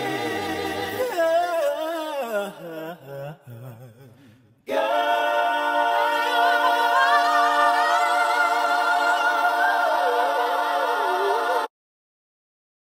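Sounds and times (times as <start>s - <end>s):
a cappella voices holding a chord: 0.0s - 1.8s, 4.7s - 11.7s.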